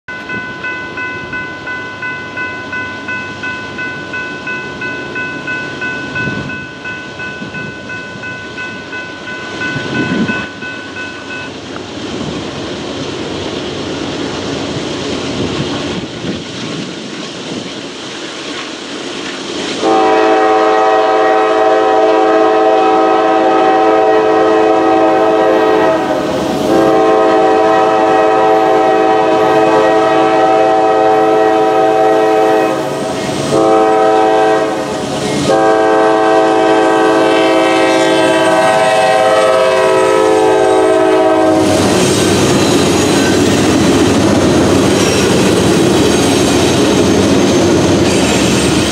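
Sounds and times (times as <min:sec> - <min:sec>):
crossing warning bell dinging: 0:00.1 - 0:11.8, 0:19.8 - 0:48.9
locomotive horn blast: 0:19.8 - 0:41.9.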